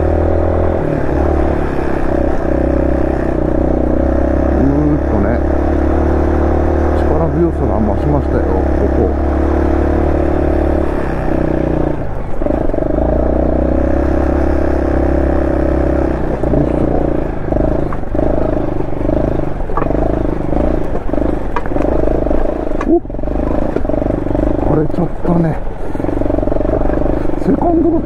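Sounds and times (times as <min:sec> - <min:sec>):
motorcycle engine running: 0:00.0 - 0:28.0
sharp ticks: 0:17.6 - 0:24.6.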